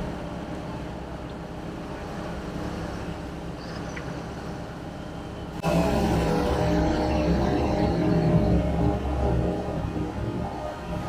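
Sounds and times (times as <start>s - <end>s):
vehicle engines running: 0.0s - 11.0s
music: 5.6s - 11.0s.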